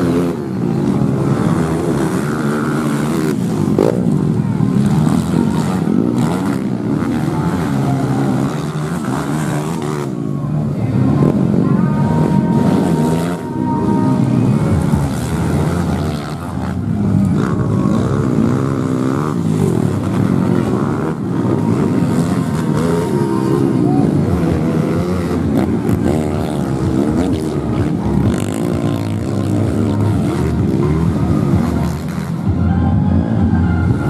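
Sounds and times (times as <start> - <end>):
motorcycle engines revving: 0.0 - 34.0.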